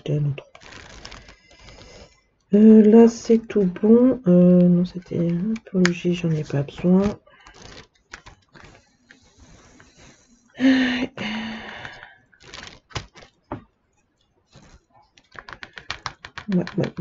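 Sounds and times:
squeaky plastic scrape: 0:00.4 - 0:02.2, 0:04.9 - 0:09.8, 0:12.4 - 0:13.4, 0:14.5 - 0:17.0
sharp plastic clicks: 0:14.6 - 0:17.0.

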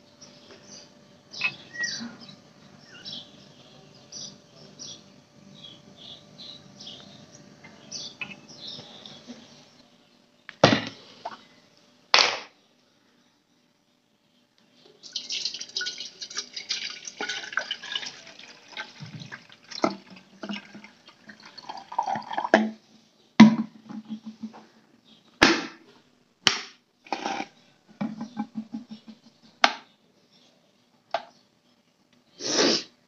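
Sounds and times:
water poured into kettle: 0:15.1 - 0:22.6
kettle knocks and clicks: 0:23.4 - 0:24.5, 0:28.0 - 0:29.8.

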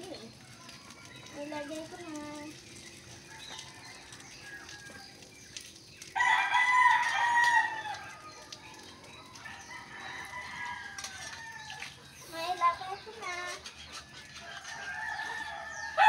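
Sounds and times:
rooster crowing: 0:06.2 - 0:08.3, 0:09.4 - 0:11.8, 0:14.4 - 0:16.0.

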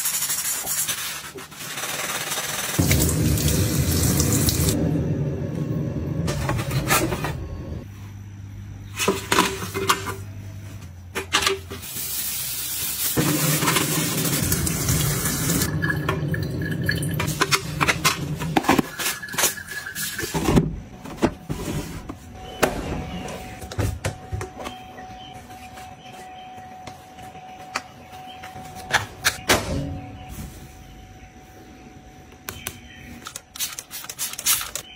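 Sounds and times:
tap running water: 0:02.8 - 0:04.8.

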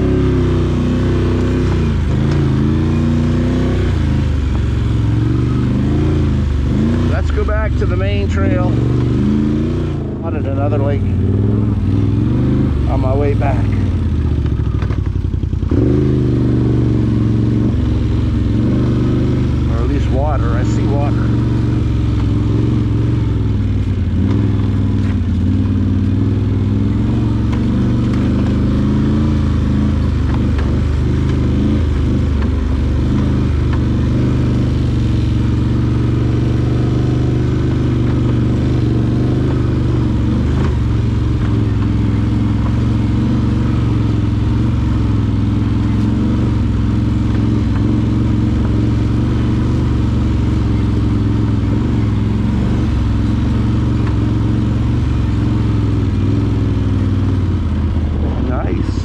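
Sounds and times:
atv engine running: 0:00.0 - 0:59.0.

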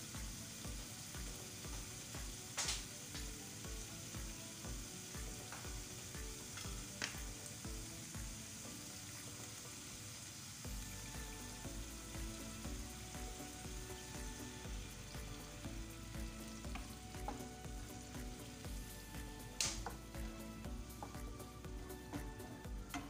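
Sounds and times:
curry sizzling in a pan: 0:00.0 - 0:23.0
wooden spoon stirring: 0:16.5 - 0:23.0.

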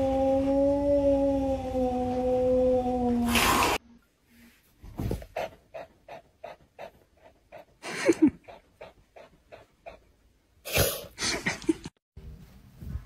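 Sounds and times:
small dog panting: 0:05.2 - 0:10.1.

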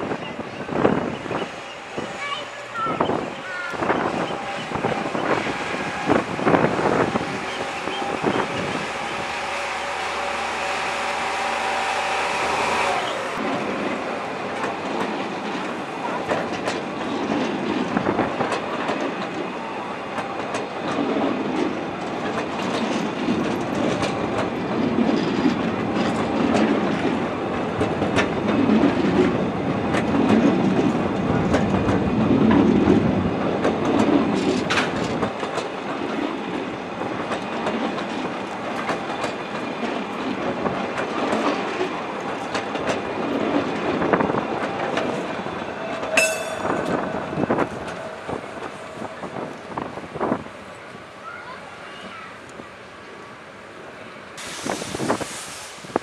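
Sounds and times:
diesel locomotive engine running: 0:00.0 - 0:19.8
train wheels clacking over rail joints: 0:27.8 - 0:50.3.

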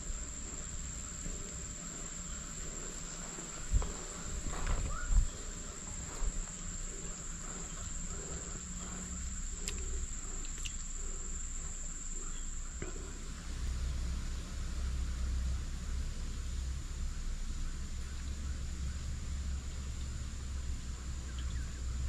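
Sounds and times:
insects droning: 0:00.0 - 0:22.0.

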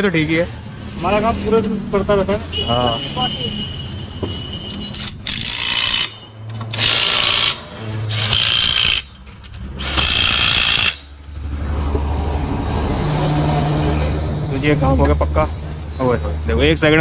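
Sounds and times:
impact wrench bursts: 0:04.8 - 0:11.2.

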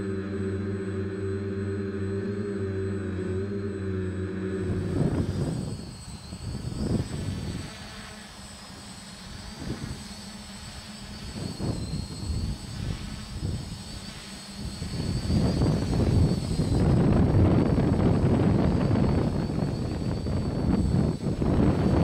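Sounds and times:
low rumbling: 0:00.0 - 0:08.2
quadcopter propellers whining: 0:00.0 - 0:22.0.

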